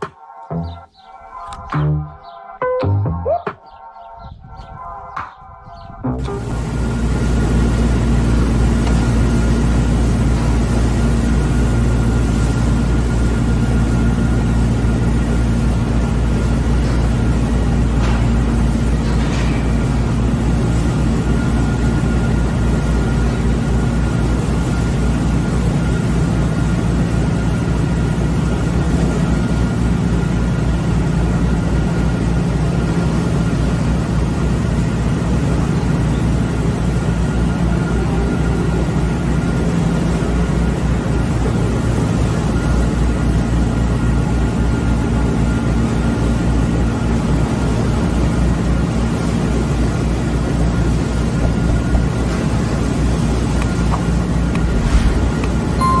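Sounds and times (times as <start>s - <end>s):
heavy machinery engine running: 6.0s - 56.0s.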